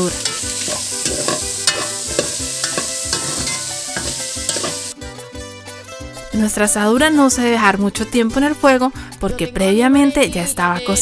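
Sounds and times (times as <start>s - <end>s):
meat sizzling in oil: 0.0s - 5.0s
spatula scraping metal pot: 0.2s - 5.0s.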